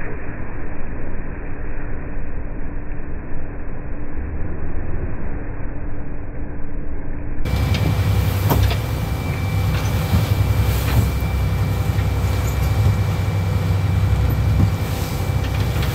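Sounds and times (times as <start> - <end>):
boat engine humming: 7.5 - 15.9
churning wake water: 7.5 - 15.9.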